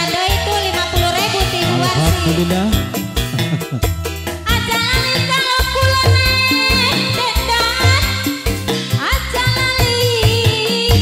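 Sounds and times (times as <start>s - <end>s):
woman singing through microphone: 0.0s - 2.8s, 4.4s - 8.3s, 9.0s - 11.0s
live band playing folk dance music: 0.0s - 11.0s.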